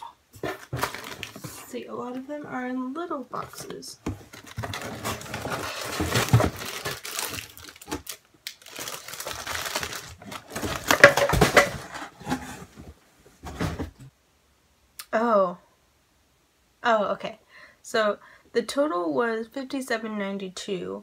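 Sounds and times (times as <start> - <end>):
plastic wrapping crinkling: 0.4 - 1.7, 3.6 - 12.6
hands rummaging in cardboard box: 0.4 - 1.8, 3.3 - 14.0.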